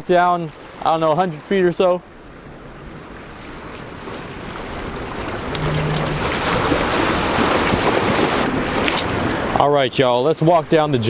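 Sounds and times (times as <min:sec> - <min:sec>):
surf washing against boulders: 0:02.7 - 0:11.0
wind on microphone: 0:03.8 - 0:09.4.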